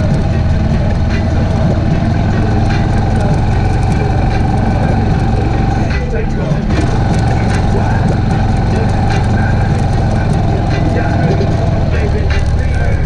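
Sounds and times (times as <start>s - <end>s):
atv engine running: 0.0s - 13.0s.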